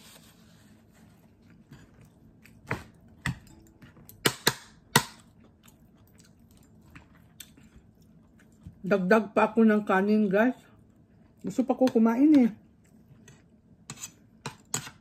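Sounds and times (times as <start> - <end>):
quiet chewing: 1.0 - 4.2, 5.2 - 8.9, 12.6 - 14.3.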